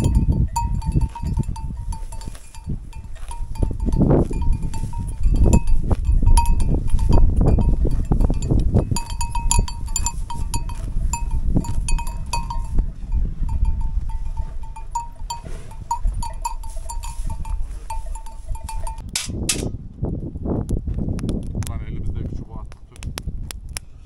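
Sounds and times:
livestock bells clinking: 0:00.0 - 0:19.1.

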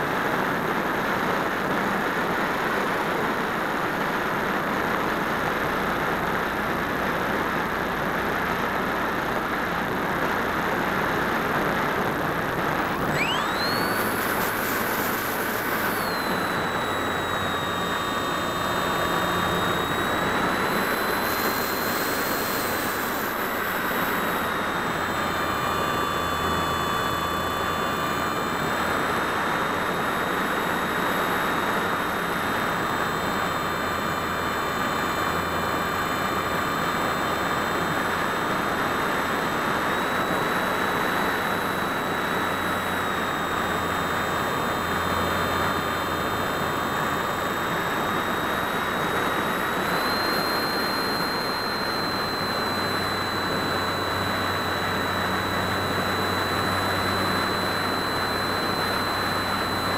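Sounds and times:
electric motor whine: 0:05.0 - 0:59.9.

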